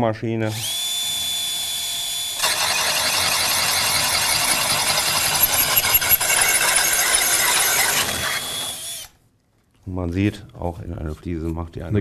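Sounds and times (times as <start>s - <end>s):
hole saw drilling into tile: 0.6s - 9.2s.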